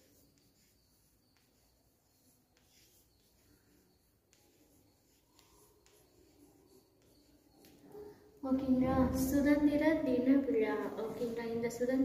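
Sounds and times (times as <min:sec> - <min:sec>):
chalk scratching on chalkboard: 0:00.0 - 0:12.0.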